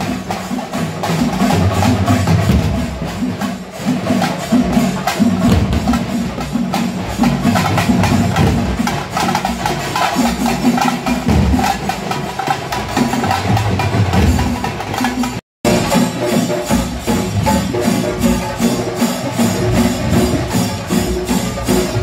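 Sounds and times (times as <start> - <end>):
frame drums beaten with sticks: 0.0 - 22.0.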